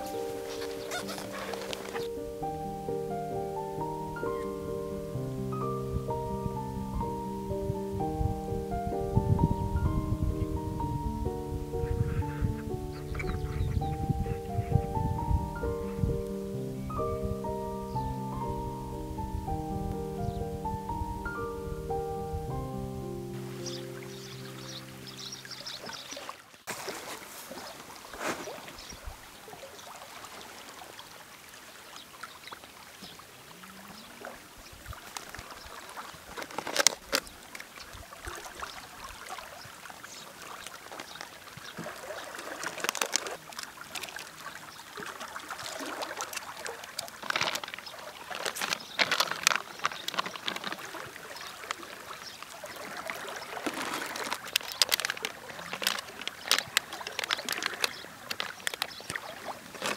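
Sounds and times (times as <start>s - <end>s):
river water trickling: 0.0s - 59.9s
plastic packaging crinkling: 36.4s - 37.2s, 42.6s - 44.2s, 46.9s - 51.0s, 53.6s - 59.9s.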